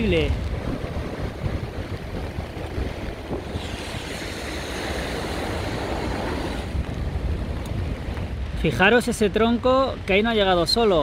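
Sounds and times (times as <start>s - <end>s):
rushing floodwater: 0.0s - 11.0s
wind rumbling on microphone: 0.0s - 11.0s.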